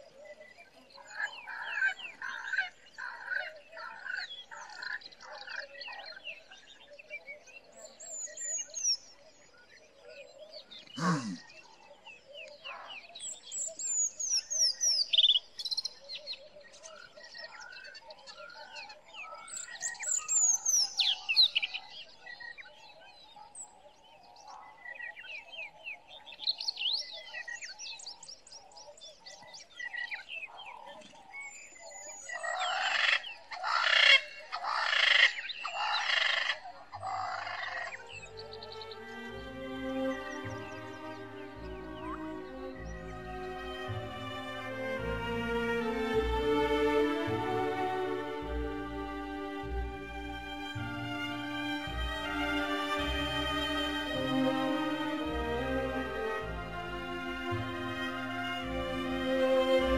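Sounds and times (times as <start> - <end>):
frogs chorus: 0.0 - 7.8, 9.5 - 13.8, 21.7 - 26.1, 28.6 - 38.2.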